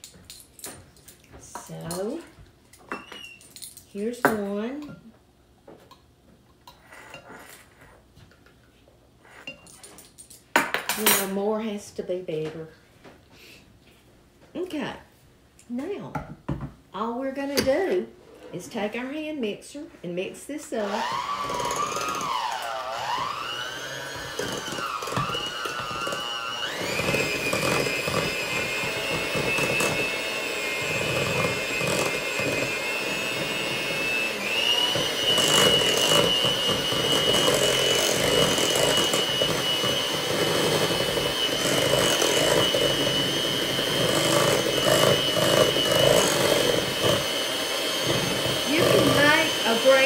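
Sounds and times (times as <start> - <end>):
electric hand mixer running: 20.8 - 50.0.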